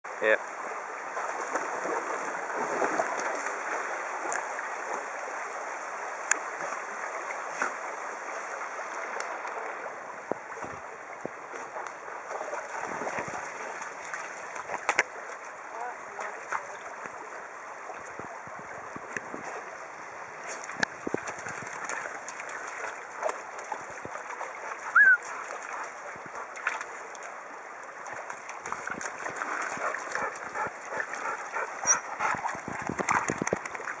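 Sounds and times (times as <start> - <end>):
running stream water: 0.1 - 34.0
dog splashing in water: 12.2 - 15.4, 20.5 - 27.0, 28.0 - 34.0.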